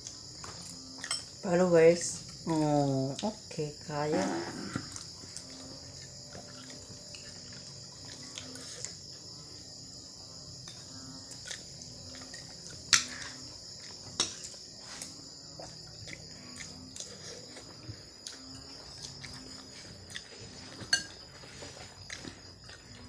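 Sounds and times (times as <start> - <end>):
crickets chirring: 0.0 - 23.0.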